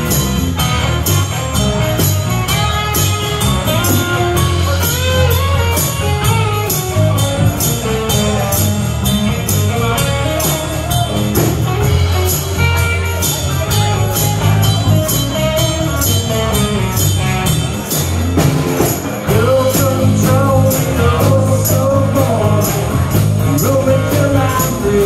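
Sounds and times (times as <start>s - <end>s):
bass guitar: 0.0s - 25.0s
drums: 0.0s - 25.0s
electric guitar: 0.0s - 25.0s
high percussion strikes: 0.0s - 25.0s.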